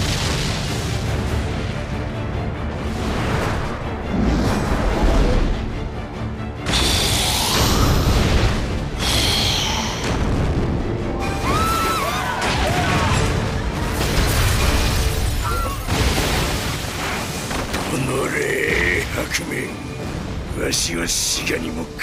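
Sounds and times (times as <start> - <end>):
booming explosions: 0.0 - 2.0, 7.4 - 11.1
dramatic soundtrack music: 0.0 - 22.0.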